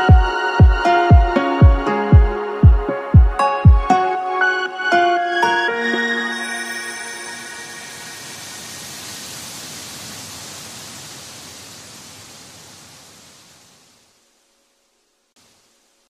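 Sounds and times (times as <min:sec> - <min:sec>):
background music: 0:00.0 - 0:08.8
hiss-like noise: 0:06.4 - 0:16.0.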